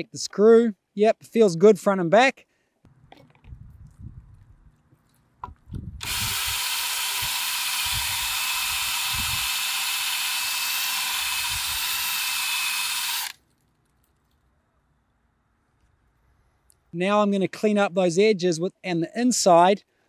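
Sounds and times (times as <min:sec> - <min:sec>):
cordless drill whirring: 0:06.0 - 0:13.4.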